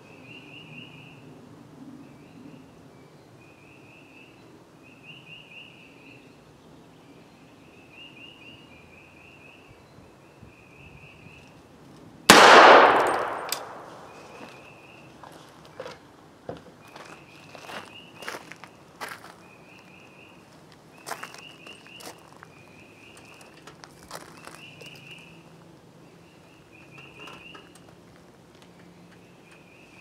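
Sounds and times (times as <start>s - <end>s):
rifle shot: 12.3s - 14.3s.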